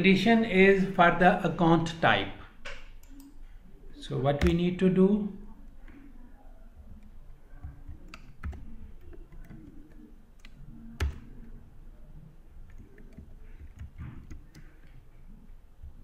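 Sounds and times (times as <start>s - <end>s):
computer keyboard typing: 7.5s - 11.6s, 12.6s - 15.0s.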